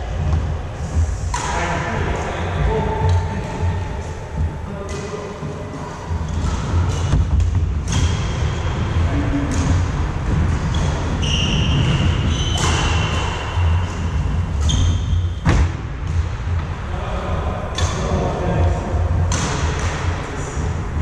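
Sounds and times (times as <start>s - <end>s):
steady low rumble: 0.0s - 21.0s
racket hitting shuttlecock: 1.3s - 1.6s, 4.9s - 8.6s, 9.5s - 16.3s, 19.2s - 20.3s
shoe squeaks on wooden court: 10.7s - 14.0s, 14.6s - 15.4s.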